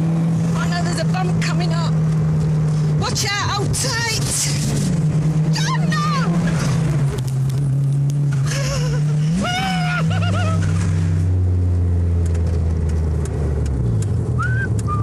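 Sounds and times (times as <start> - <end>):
car engine pulling hard: 0.0 - 15.0.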